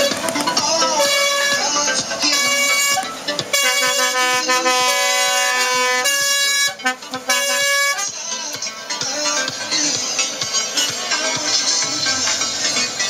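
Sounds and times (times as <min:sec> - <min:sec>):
music with a beat: 0:00.0 - 0:13.0
truck air horn blasts: 0:00.9 - 0:08.2.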